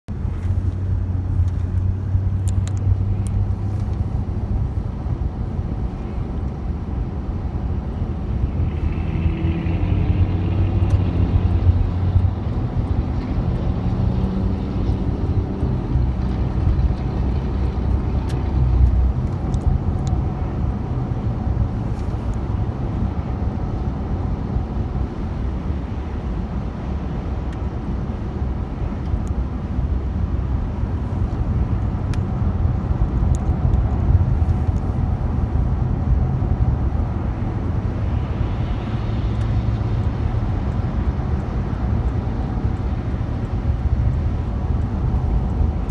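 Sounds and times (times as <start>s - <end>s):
car driving on wet road: 0.1s - 45.9s
car engine revving: 8.4s - 19.4s.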